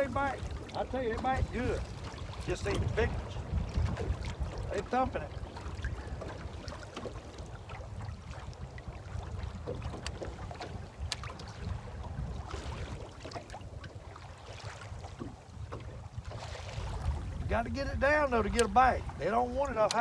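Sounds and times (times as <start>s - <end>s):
wind rumbling on microphone: 0.0s - 20.0s
faint sharp ticks: 11.1s - 11.3s, 18.5s - 18.8s, 19.8s - 20.0s.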